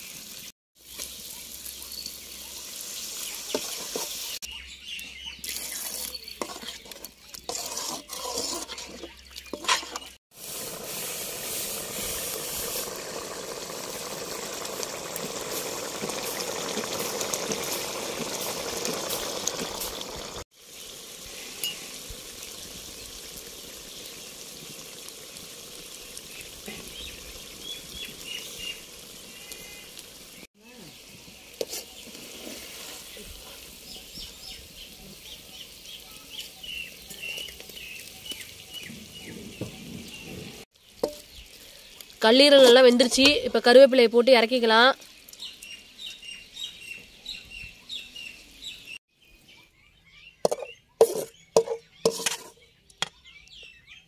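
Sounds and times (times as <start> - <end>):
gravy simmering and sizzling: 0.0 - 49.1
stirring in a pan: 0.8 - 4.5, 5.4 - 43.8, 50.4 - 52.7
gravy boiling and bubbling: 5.4 - 43.8
water splashing in a pan: 5.5 - 39.3, 40.1 - 45.8.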